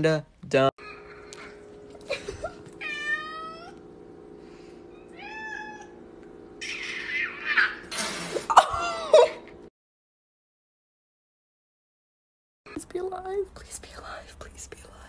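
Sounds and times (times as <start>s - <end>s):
cats fighting with spitting cries: 2.3s - 3.9s, 4.9s - 6.0s, 6.6s - 9.5s
cats meowing: 2.6s - 3.9s, 4.9s - 6.0s, 6.6s - 7.9s.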